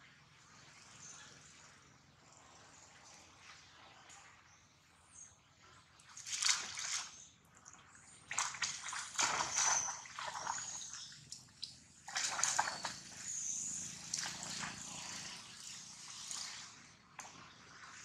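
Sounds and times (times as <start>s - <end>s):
monkeys splashing in water: 6.1s - 7.2s, 8.2s - 18.0s.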